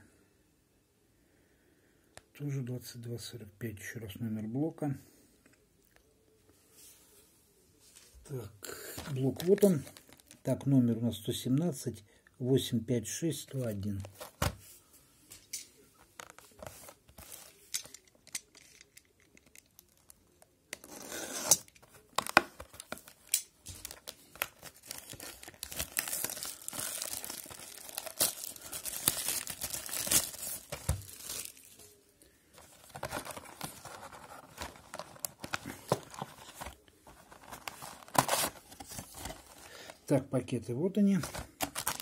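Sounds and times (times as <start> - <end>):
cardboard and wrapping tearing: 23.8 - 31.7, 32.8 - 39.6, 41.6 - 42.0.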